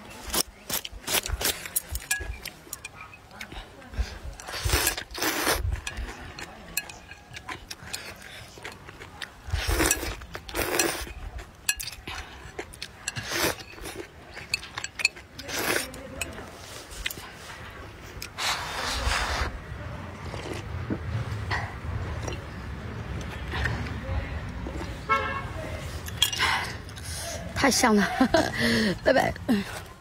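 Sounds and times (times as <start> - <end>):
slurping noodles: 4.3 - 6.4, 9.4 - 11.2, 12.1 - 14.7, 18.2 - 21.0
sipping broth: 18.2 - 19.6.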